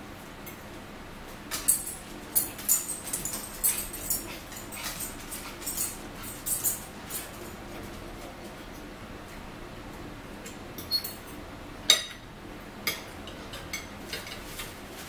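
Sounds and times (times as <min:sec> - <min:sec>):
cutlery clicking and scraping plates: 0:01.5 - 0:07.3, 0:12.9 - 0:14.8.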